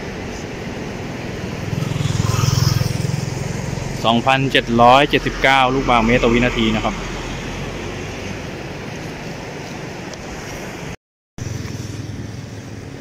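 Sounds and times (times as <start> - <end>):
truck passing with rumbling hiss: 0.0 - 13.0
fluttering low rumble: 1.4 - 8.6.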